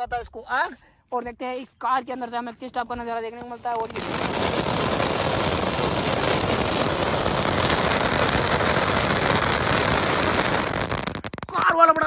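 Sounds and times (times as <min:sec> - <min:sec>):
firecracker hissing and crackling: 0:03.6 - 0:11.7.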